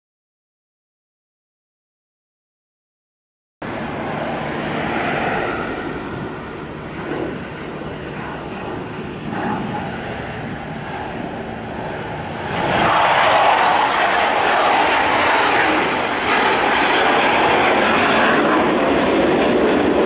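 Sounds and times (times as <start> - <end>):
thin high whine: 3.6 - 16.4
jet engine rush: 3.6 - 20.0.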